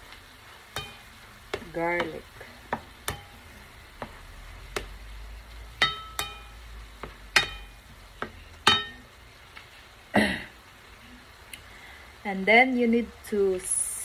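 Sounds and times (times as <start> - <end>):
shrimp sizzling in frying pan: 0.0 - 14.0
spatula knocking on pan: 0.7 - 9.2
pan clatter: 8.6 - 9.0.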